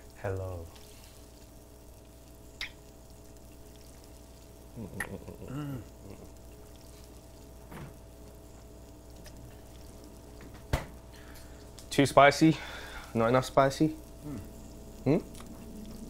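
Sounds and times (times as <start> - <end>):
low hum: 0.0 - 11.9, 13.9 - 16.0
murmured wavering voice: 4.8 - 6.4, 14.2 - 15.3.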